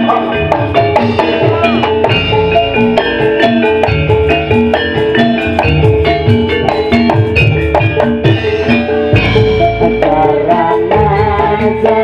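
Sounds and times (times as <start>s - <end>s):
hand drums: 0.0s - 12.0s
ringing tuned metal percussion: 0.0s - 12.0s.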